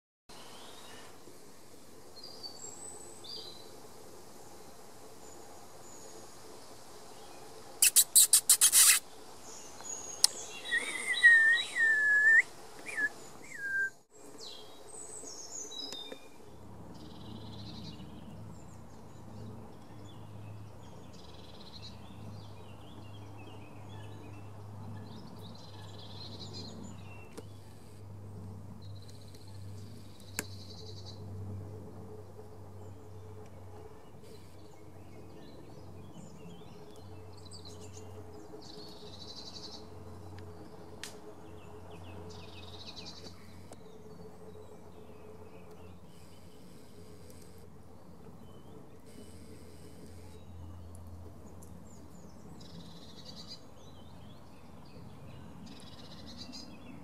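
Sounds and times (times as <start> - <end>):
sharp clicks: 7.8 - 9.0
whistled bird notes: 7.8 - 9.0, 9.8 - 14.0
birds singing and calling: 7.8 - 16.4.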